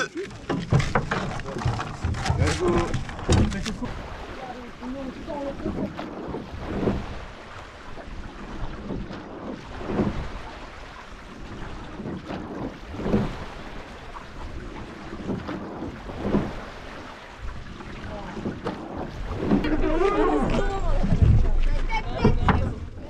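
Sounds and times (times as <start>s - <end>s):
water rushing along boat hull: 0.0s - 23.0s
wind noise on microphone: 5.1s - 23.0s.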